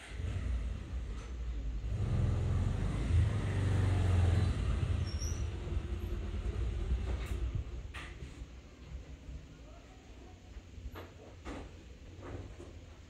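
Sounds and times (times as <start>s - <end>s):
vehicle engine passing by: 0.0s - 7.7s.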